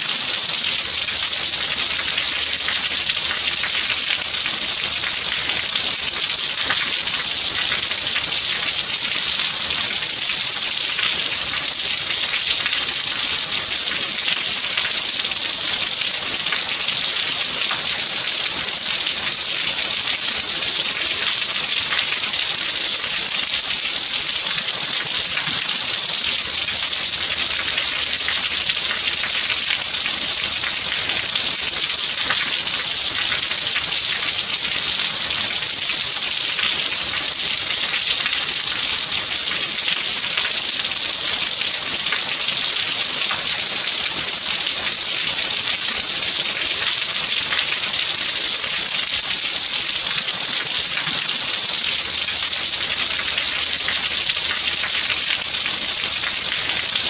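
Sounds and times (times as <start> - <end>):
steady rain hiss: 0.0 - 37.6.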